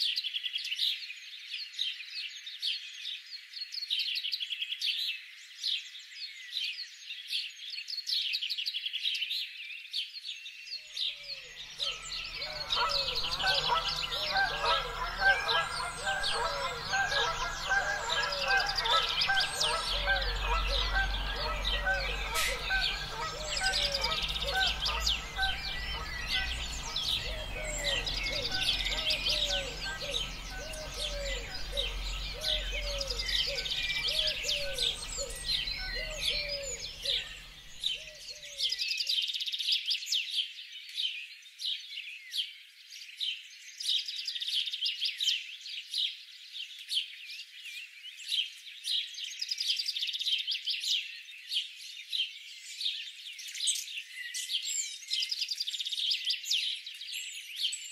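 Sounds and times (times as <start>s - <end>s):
small birds chirping: 0.0s - 57.9s
low falling bird call: 11.6s - 38.0s.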